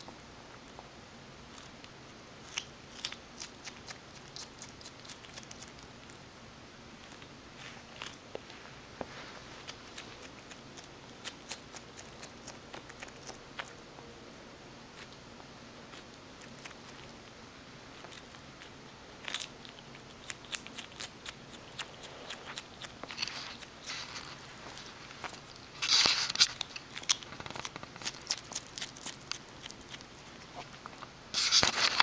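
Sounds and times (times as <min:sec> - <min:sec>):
animal chewing food: 0:17.9 - 0:32.0.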